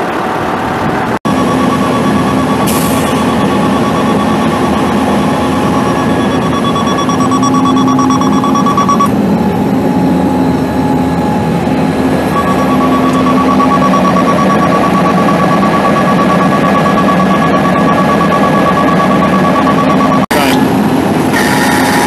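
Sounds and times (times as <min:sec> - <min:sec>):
diesel truck engine running: 0:00.0 - 0:22.0
electronic warning alarm beeping: 0:01.3 - 0:20.6.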